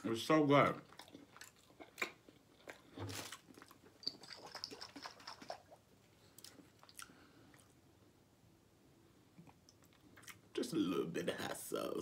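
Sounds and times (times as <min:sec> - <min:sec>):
person chewing meat: 0:00.7 - 0:05.5, 0:09.4 - 0:10.5.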